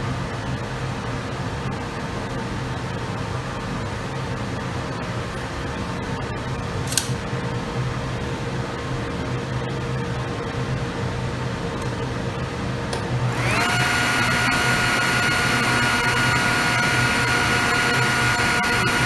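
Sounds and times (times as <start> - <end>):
steady machine hum: 0.0 - 19.0
table saw motor whine: 13.3 - 19.0.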